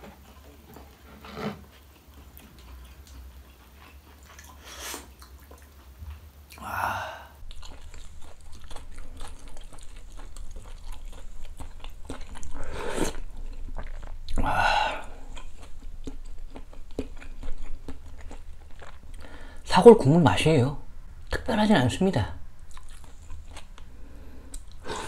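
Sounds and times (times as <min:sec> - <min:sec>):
person chewing noodles: 0:00.0 - 0:19.6, 0:22.6 - 0:25.0
slurping: 0:07.5 - 0:16.2.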